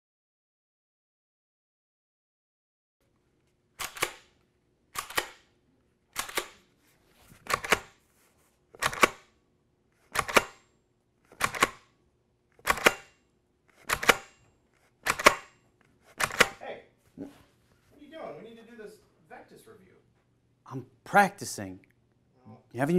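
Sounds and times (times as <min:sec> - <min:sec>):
air rifle lever cycling: 0:03.8 - 0:04.3, 0:05.0 - 0:05.4, 0:06.2 - 0:06.6.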